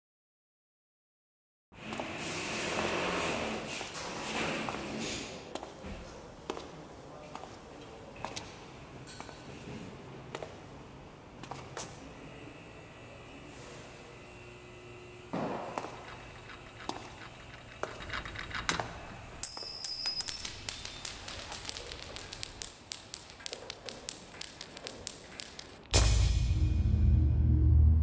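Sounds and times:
metallic clicking and rattling: 0:15.8 - 0:26.0
high ringing: 0:15.9 - 0:26.0
low rumbling music: 0:26.0 - 0:28.0.

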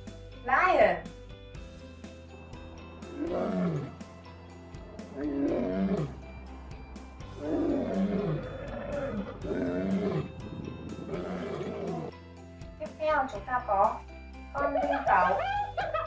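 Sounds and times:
background music: 0:00.0 - 0:16.0
lion roaring: 0:03.0 - 0:04.0, 0:04.9 - 0:06.4, 0:07.4 - 0:12.1.

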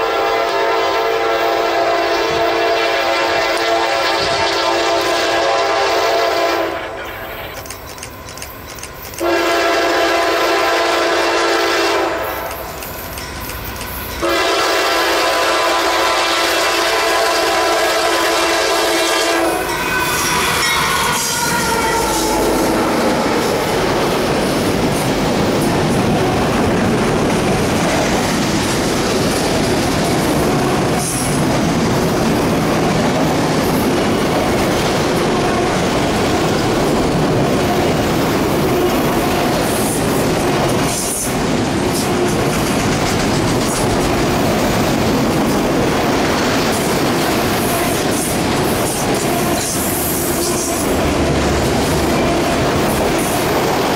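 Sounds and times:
train horn falling in pitch: 0:00.0 - 0:07.0, 0:09.2 - 0:12.5, 0:14.2 - 0:23.7
diesel locomotives passing: 0:00.0 - 0:53.9
rumble and clatter of train wheels: 0:00.0 - 0:53.9.

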